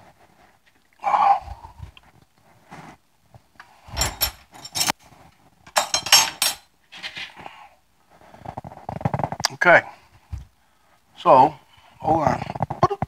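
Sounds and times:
cutlery and dishes clinking: 3.9 - 5.0, 5.7 - 7.2.

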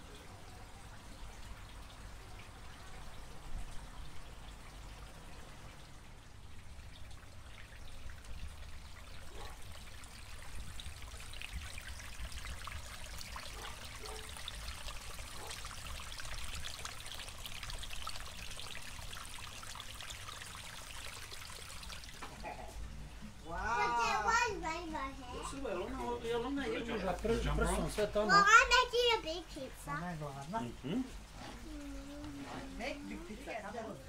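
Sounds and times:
small waterfall splashing: 0.0 - 22.4.

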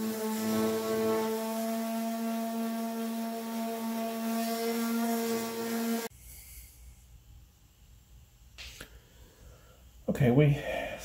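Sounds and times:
electric sander motor hum: 0.0 - 6.1
sandpaper hissing on plastic: 0.0 - 6.7.

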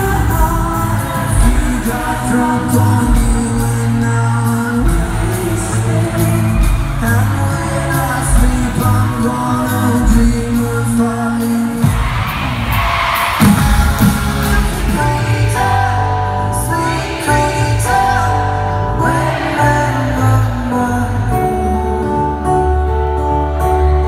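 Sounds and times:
lead singer singing: 0.0 - 24.0
live pop-rock band: 0.0 - 24.0
crowd screaming: 11.7 - 15.2.

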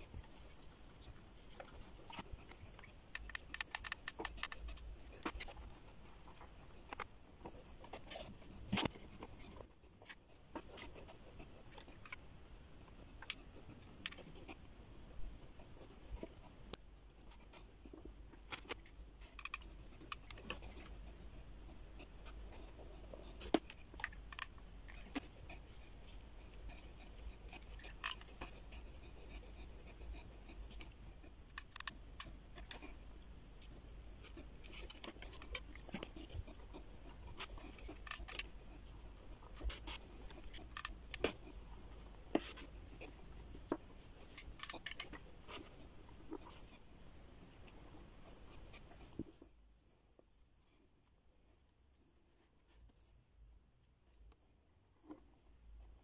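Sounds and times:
low steady hum: 0.0 - 56.0
clicks and taps of wooden sticks: 2.8 - 5.6.

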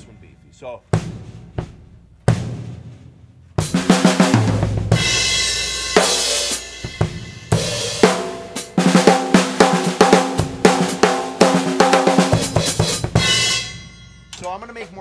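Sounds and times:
snare and tom drum fill: 0.9 - 13.8
cymbal crash: 12.9 - 14.3.

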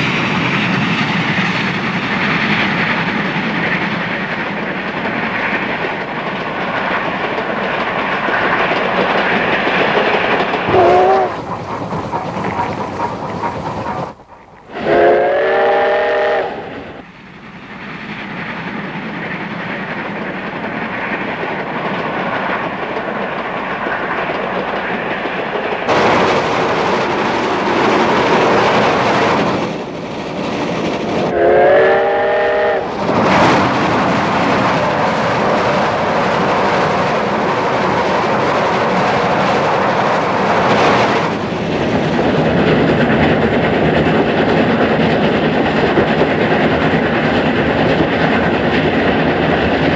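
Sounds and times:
locomotive running noise: 0.0 - 49.9
steam locomotive chime whistle: 10.7 - 11.4, 14.7 - 16.8, 31.3 - 32.9.

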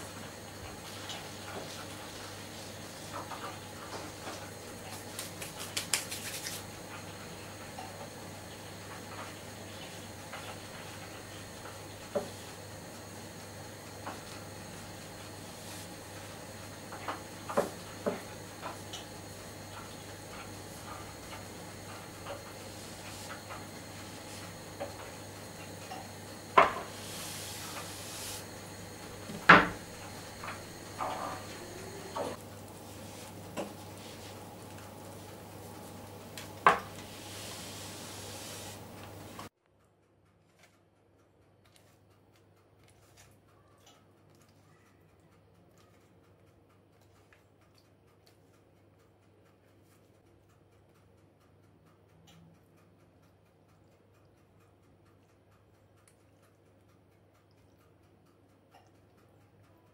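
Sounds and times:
faint steady hum: 0.0 - 39.5
soft rustle of dough: 32.5 - 39.3.

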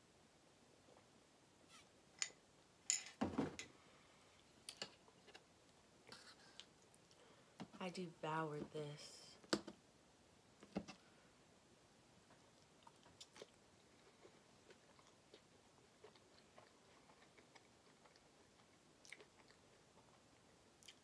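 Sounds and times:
person chewing food: 12.3 - 21.0.

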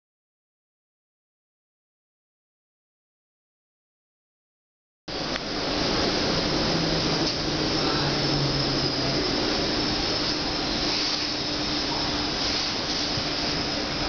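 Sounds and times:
faint steady hum: 5.1 - 14.0
train wheels rushing rumble: 5.1 - 14.0.

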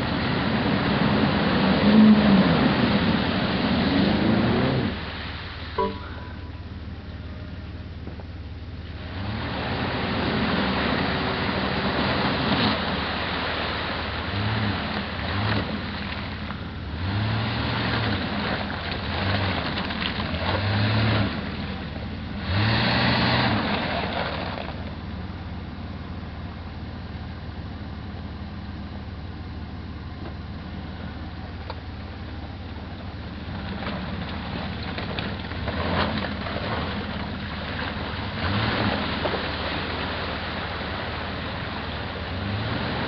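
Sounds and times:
tyres churning mud: 0.0 - 5.8, 9.0 - 25.2, 30.7 - 43.0
pickup engine revving: 9.0 - 24.9, 35.6 - 43.0.

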